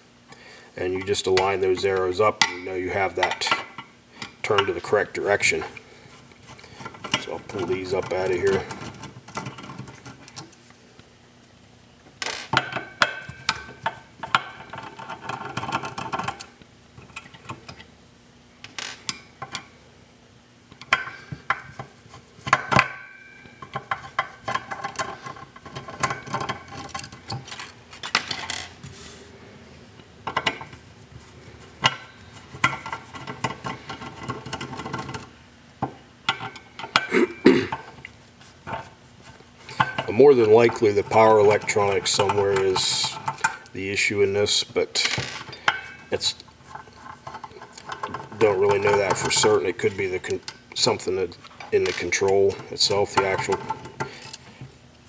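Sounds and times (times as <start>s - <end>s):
clicks and knocks of handled parts: 6.4s - 10.6s, 20.7s - 28.7s, 30.2s - 30.8s, 31.8s - 37.1s, 37.7s - 43.8s, 45.0s - 55.0s.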